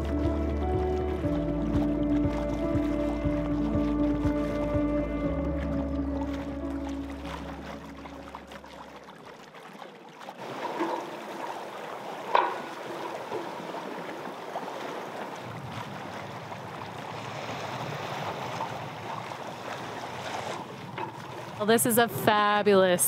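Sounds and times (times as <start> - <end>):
deep rumble: 0.0 - 8.6
water washing along a hull: 0.0 - 23.0.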